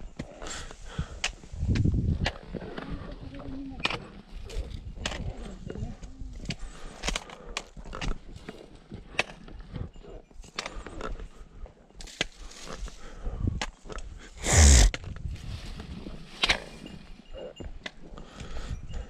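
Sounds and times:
footsteps on rocky trail: 0.0s - 19.0s
trekking poles clicking on rock: 0.1s - 11.4s.

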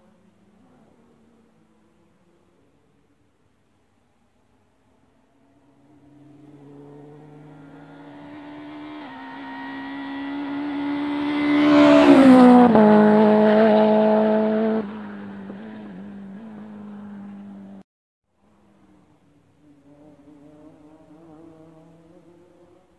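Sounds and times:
rally car engine passing by: 5.4s - 17.8s, 19.7s - 22.9s.

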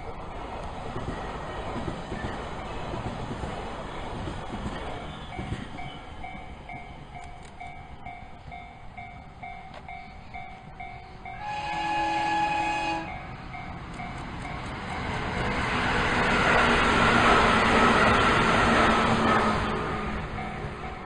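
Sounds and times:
electric trains passing: 0.0s - 21.0s
multi-tone train horn: 11.3s - 13.4s.

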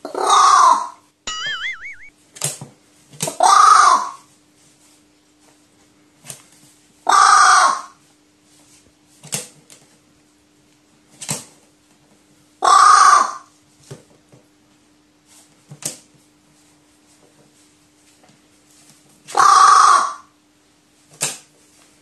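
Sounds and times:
crow cawing: 12.6s - 13.4s, 19.4s - 20.2s.

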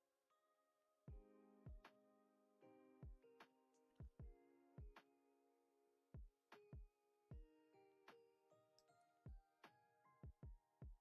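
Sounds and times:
deep kick drum: 1.1s - 1.8s, 4.0s - 5.0s, 10.3s - 11.0s.

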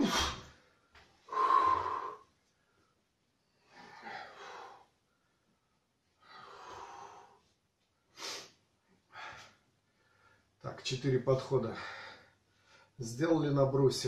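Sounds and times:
man breathing hard: 1.3s - 2.3s, 3.6s - 5.3s, 6.2s - 7.5s.

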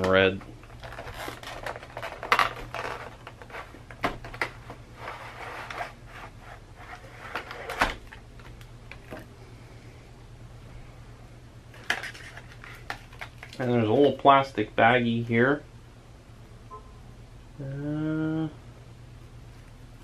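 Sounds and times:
plastic packaging rustling: 0.0s - 9.2s, 11.7s - 14.1s
low steady hum: 0.0s - 20.0s.

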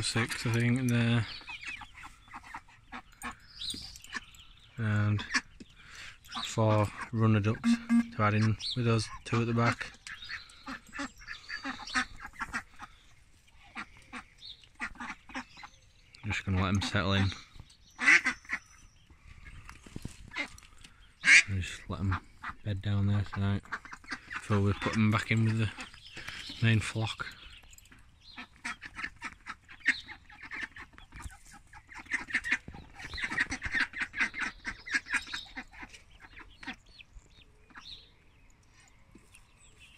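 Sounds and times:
ducks quacking: 1.2s - 5.6s, 6.3s - 15.7s, 18.0s - 18.6s, 21.2s - 27.3s, 28.3s - 37.0s.

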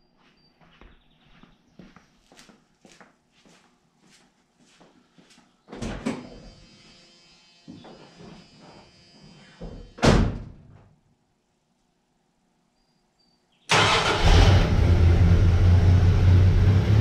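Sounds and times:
footsteps: 0.0s - 5.5s
truck door slamming shut: 10.0s - 10.6s.

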